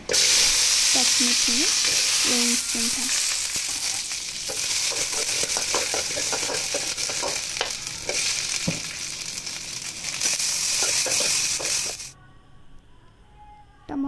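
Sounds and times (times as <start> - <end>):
chillies sizzling in hot oil: 0.0 - 12.2
metal spoon scraping pan: 3.8 - 8.3, 10.8 - 12.0.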